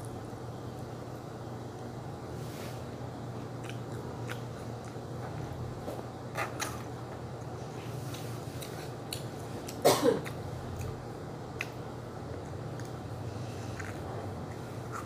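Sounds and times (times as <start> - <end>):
steady low hum: 0.0 - 15.0
person chewing a snack: 3.5 - 5.5, 6.4 - 15.0.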